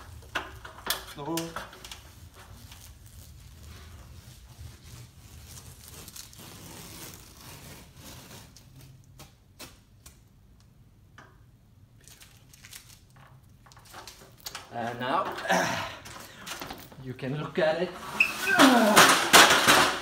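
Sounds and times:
masking tape peeling off wall: 0.0 - 10.4, 12.0 - 17.0, 17.9 - 20.0.

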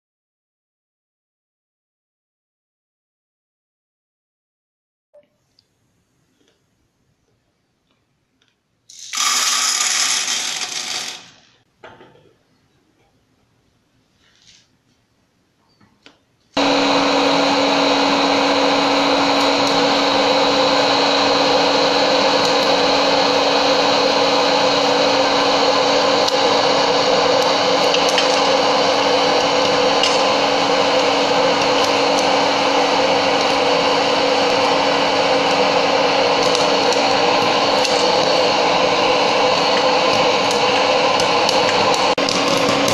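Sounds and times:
popcorn maker fan humming: 8.9 - 11.3, 16.6 - 42.9
rush of hot air: 16.6 - 42.9.

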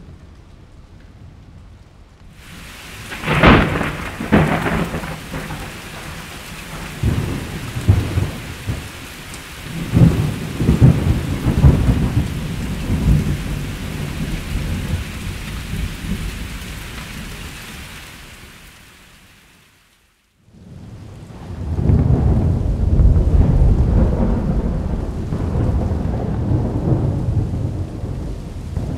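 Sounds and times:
steady rain: 0.0 - 28.9
rolling thunder rumbling: 2.4 - 17.6, 20.5 - 28.9
sharp thunderclap: 2.8 - 9.0, 9.6 - 16.5, 20.6 - 28.9.

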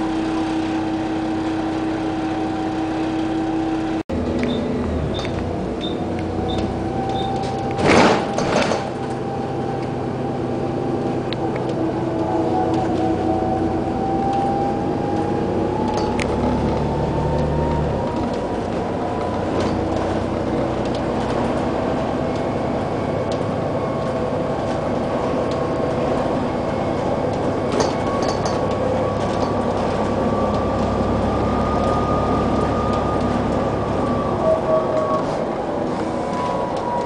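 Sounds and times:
bus engine drone: 0.0 - 37.0
drivetrain whine: 0.0 - 37.0
road noise: 0.0 - 37.0.

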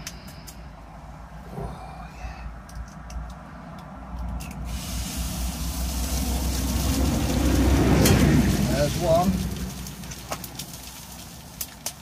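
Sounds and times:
egg sizzling in frying pan: 4.6 - 12.0.

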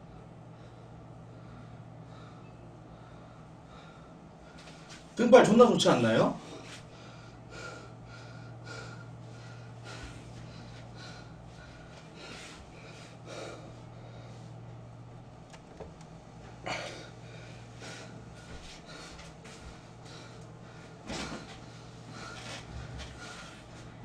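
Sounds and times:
low electrical hum: 0.0 - 24.0
man breathing and snorting: 6.5 - 14.9, 16.4 - 24.0.

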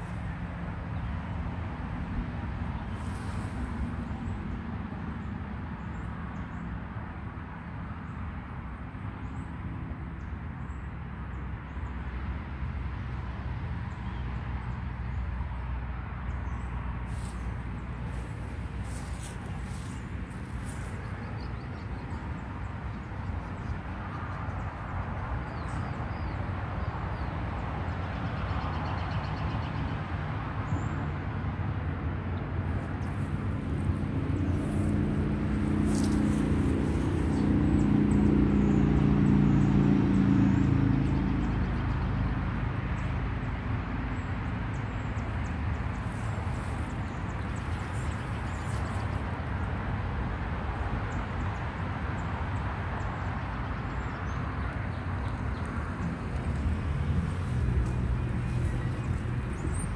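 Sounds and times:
vehicle engine passing by: 17.0 - 22.0, 32.6 - 49.7, 54.1 - 59.9
low outdoor rumble: 31.9 - 49.7, 53.6 - 59.9.

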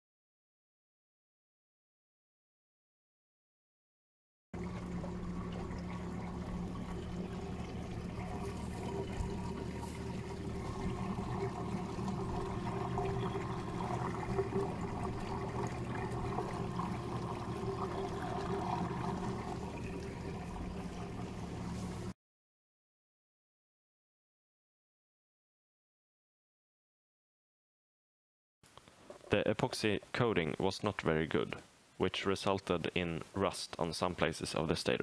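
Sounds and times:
electric motor hum: 4.6 - 22.1
water gurgling and churning: 4.6 - 22.1.

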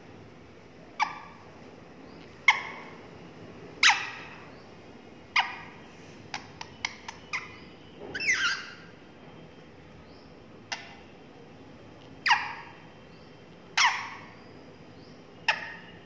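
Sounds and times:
parakeet squawks: 1.0 - 1.5, 2.4 - 3.0, 3.8 - 4.6, 5.3 - 8.9, 10.7 - 11.1, 12.2 - 12.9, 13.7 - 14.5, 15.4 - 16.0.

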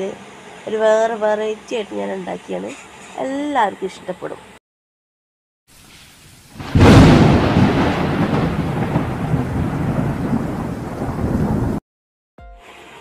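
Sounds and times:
thunder crack and rumble: 6.6 - 11.8.

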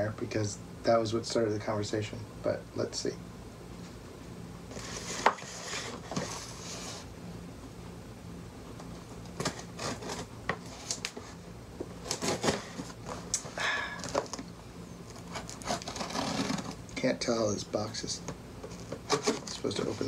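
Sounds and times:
knife scraping cardboard: 4.7 - 7.1, 9.4 - 11.4, 12.0 - 13.0, 15.2 - 16.8.

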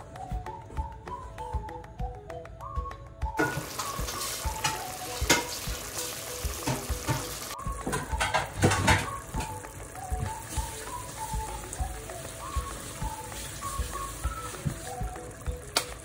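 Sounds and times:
soft background music: 0.0 - 16.0
sauce sizzling and bubbling in pan: 3.4 - 16.0.

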